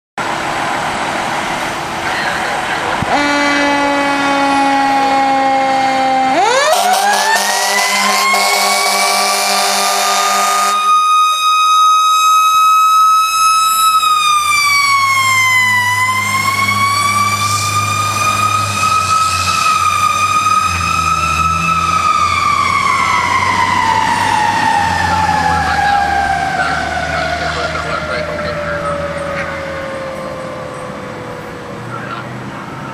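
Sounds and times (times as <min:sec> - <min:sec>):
truck engine running: 0:00.2 - 0:04.4
fire engine siren wailing: 0:00.2 - 0:32.9
horn blast: 0:03.0 - 0:11.0.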